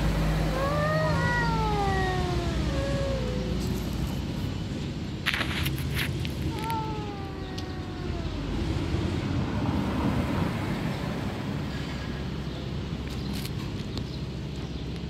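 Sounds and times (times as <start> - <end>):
cat meowing: 0.5 - 4.2, 6.4 - 8.8.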